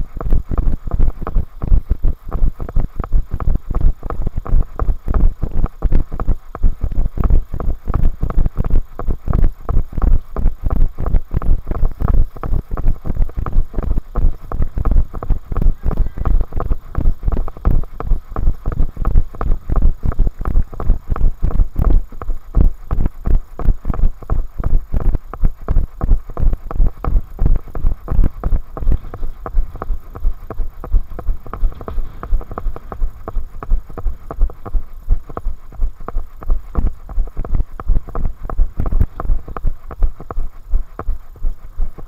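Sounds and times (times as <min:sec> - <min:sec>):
running footsteps on tarmac: 0:00.0 - 0:42.0.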